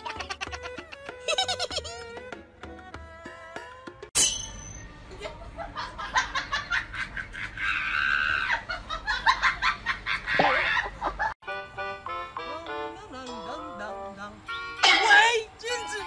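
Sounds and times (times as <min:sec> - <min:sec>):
laughter in bursts: 0:00.0 - 0:02.0, 0:05.1 - 0:11.4
music: 0:00.0 - 0:04.2, 0:11.4 - 0:16.0.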